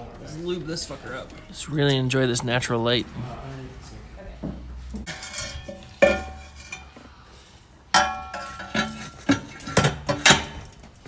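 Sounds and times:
metal pipe clanking: 0:05.0 - 0:07.0, 0:07.9 - 0:10.8.

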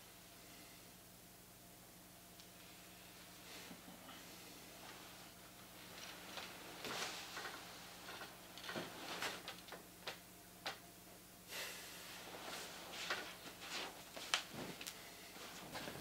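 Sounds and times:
bedclothes rustling: 0:04.5 - 0:10.2, 0:12.0 - 0:16.0.

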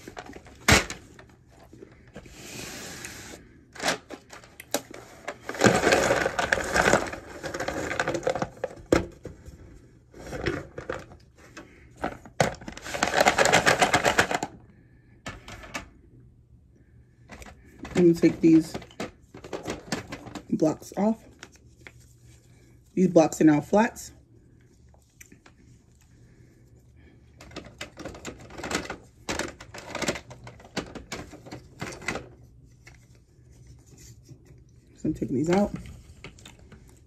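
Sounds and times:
packaging crinkling and tearing: 0:03.8 - 0:09.0, 0:12.0 - 0:14.5.

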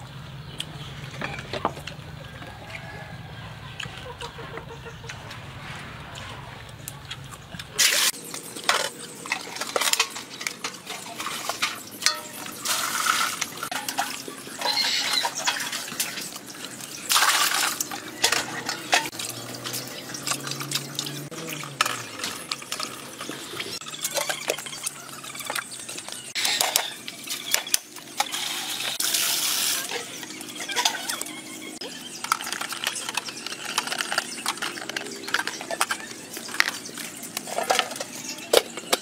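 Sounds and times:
water splashing in metal basin: 0:07.8 - 0:38.1
bowls and pots clinking: 0:07.8 - 0:39.0.

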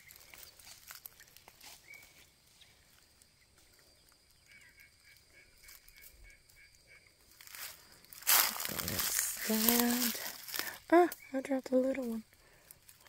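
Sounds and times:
rustles and snaps of picking berries: 0:00.0 - 0:04.6, 0:07.2 - 0:13.0.

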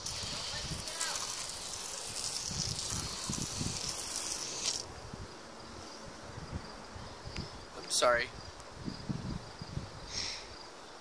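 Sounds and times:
aerosol can spraying: 0:00.0 - 0:04.9.

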